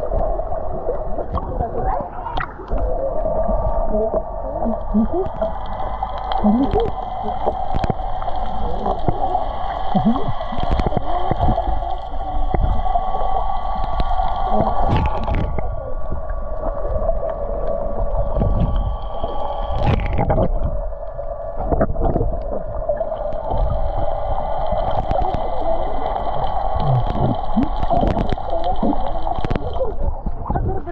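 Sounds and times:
underwater engine hum: 0.0s - 30.9s.

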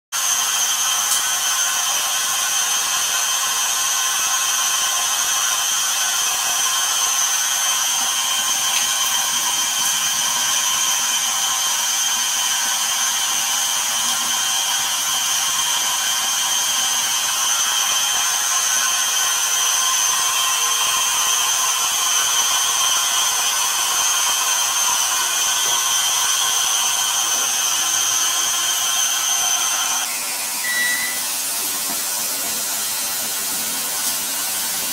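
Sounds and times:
small motor whirring: 14.0s - 31.4s.

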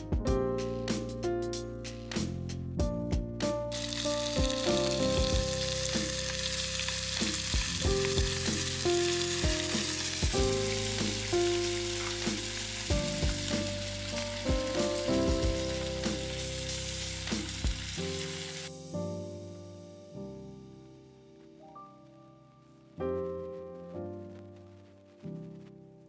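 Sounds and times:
background music: 0.0s - 26.0s
sausages sizzling in a pan: 3.7s - 18.7s.

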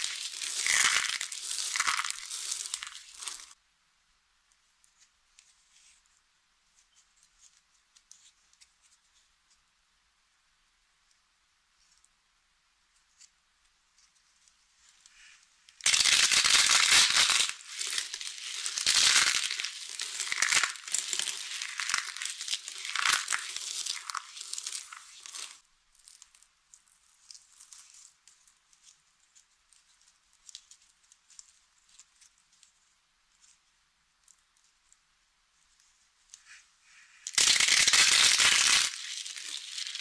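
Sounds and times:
dry soap crackling crunch: 0.0s - 3.6s, 14.4s - 33.6s, 35.7s - 40.0s.

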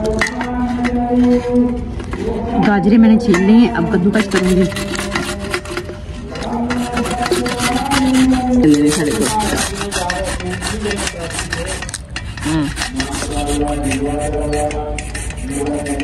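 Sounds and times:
carrots rasping on a grater: 4.2s - 5.9s, 6.5s - 16.0s.

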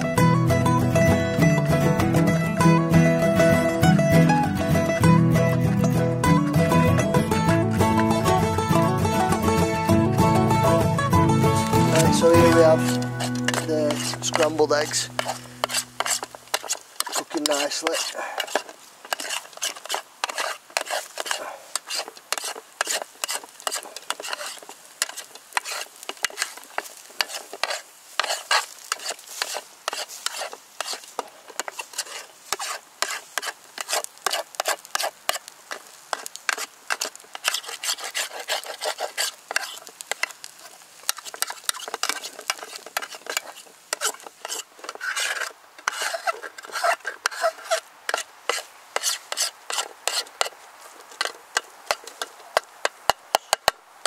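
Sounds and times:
metal spoon scraping metal tin: 11.9s - 35.4s, 36.1s - 40.3s, 41.1s - 50.5s.

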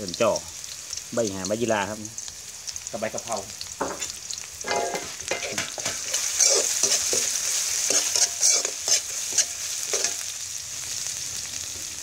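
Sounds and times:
food sizzling in hot oil: 0.0s - 12.0s
metal spoon scraping wok: 3.9s - 10.3s.

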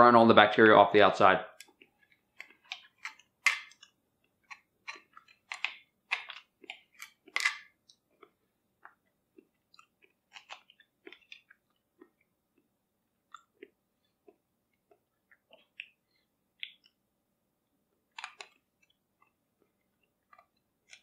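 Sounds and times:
wet chewing and lip-smacking: 1.6s - 12.7s, 13.3s - 17.0s.

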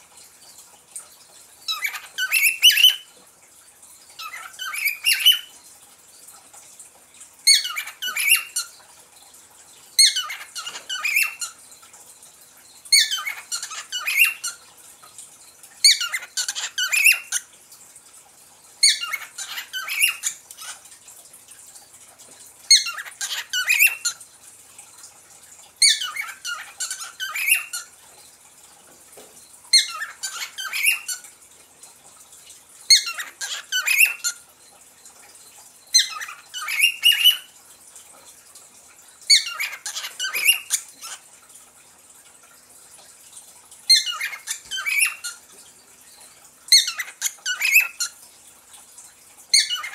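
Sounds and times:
parrot calling: 1.7s - 3.1s, 7.5s - 8.8s, 10.0s - 11.6s, 12.9s - 14.7s, 15.8s - 17.5s, 18.8s - 20.9s, 22.7s - 24.2s, 25.8s - 27.9s, 29.7s - 31.3s, 32.9s - 34.4s, 35.9s - 37.6s, 39.3s - 41.3s, 43.9s - 45.4s, 46.7s - 48.2s, 49.5s - 49.9s.

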